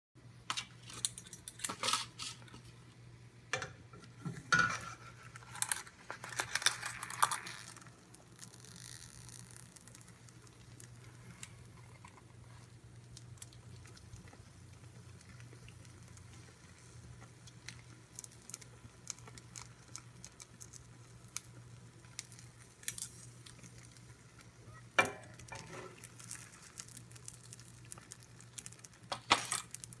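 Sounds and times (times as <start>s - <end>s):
eggs sizzling: 0.6s - 30.0s
spatula scraping frying pan: 25.1s - 26.4s.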